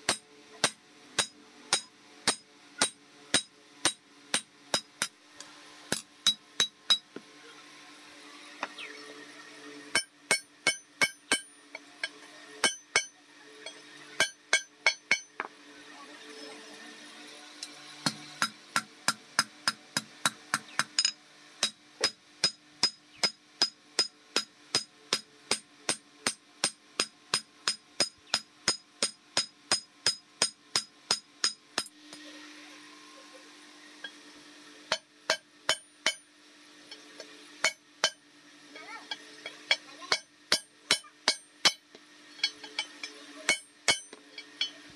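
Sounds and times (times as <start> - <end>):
hammer striking steel on anvil: 0.0 - 5.2, 5.9 - 7.2, 9.9 - 15.5, 18.0 - 32.2, 34.9 - 36.3, 36.9 - 38.2, 38.8 - 44.9.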